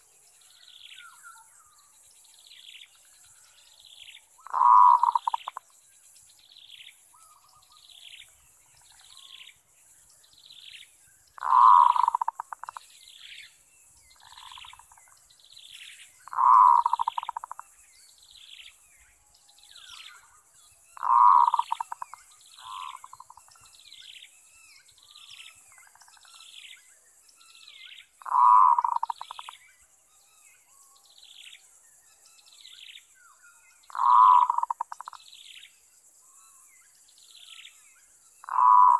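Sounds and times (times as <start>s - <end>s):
bird chirping: 0.0s - 38.9s
dove cooing: 4.4s - 5.6s, 11.4s - 12.8s, 16.3s - 17.6s, 21.0s - 23.3s, 28.2s - 29.5s, 33.9s - 35.1s, 38.5s - 38.9s.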